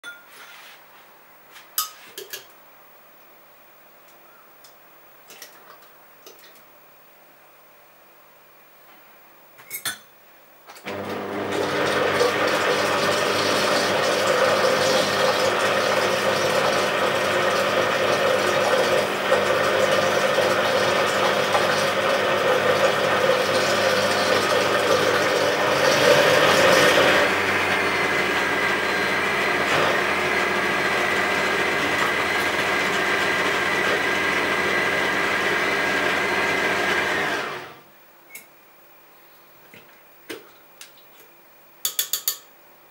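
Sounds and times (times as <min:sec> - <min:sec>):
blender motor churning: 0:10.8 - 0:37.8.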